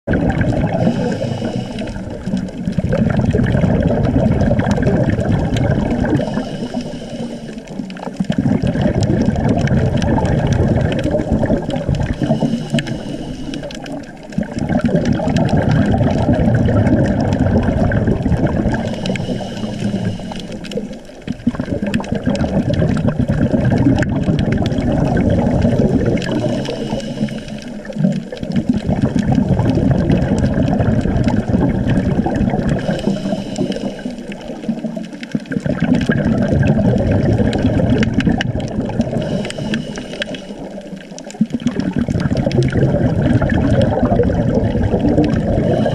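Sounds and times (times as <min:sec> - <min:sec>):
bubbling exhaled air: 0:00.1 - 0:45.9
diver breathing through regulator: 0:00.6 - 0:02.5, 0:06.0 - 0:08.0, 0:11.2 - 0:14.2, 0:18.5 - 0:21.1, 0:25.4 - 0:28.2, 0:32.6 - 0:34.9, 0:39.0 - 0:41.0, 0:45.2 - 0:45.9.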